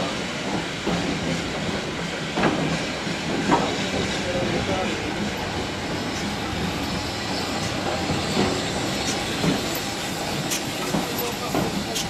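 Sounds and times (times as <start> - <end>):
train wheels rumbling on track: 0.0 - 12.0.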